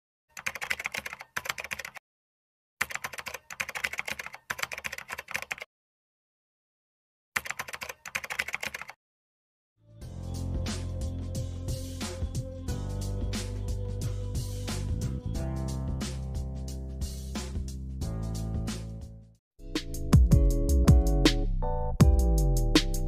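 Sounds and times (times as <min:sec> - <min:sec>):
rapid keyboard keystrokes: 0:00.3 - 0:02.0, 0:02.8 - 0:05.7, 0:07.4 - 0:09.0
music: 0:09.8 - 0:23.0.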